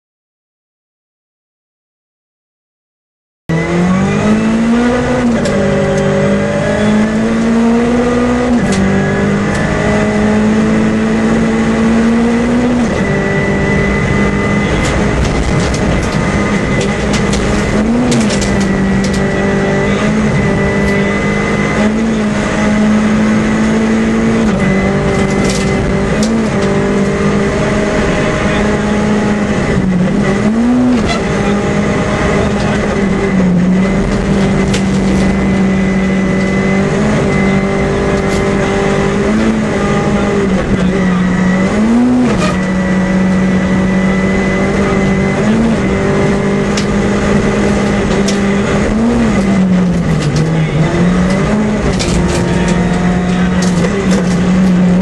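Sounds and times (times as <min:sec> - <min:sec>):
rally car engine running hard: 0:03.5 - 0:55.0.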